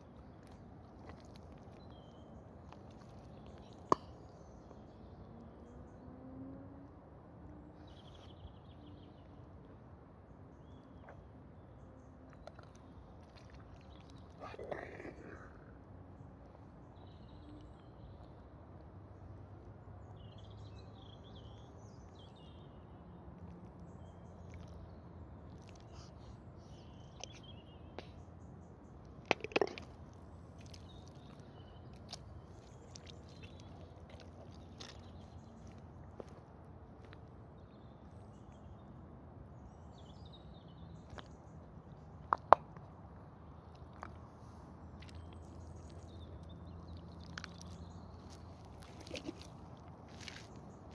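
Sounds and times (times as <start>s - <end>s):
small birds chirping: 0.0s - 6.1s, 7.7s - 50.9s
low outdoor rumble: 0.0s - 50.9s
boots squelching in mud: 30.6s - 36.4s, 47.2s - 50.9s.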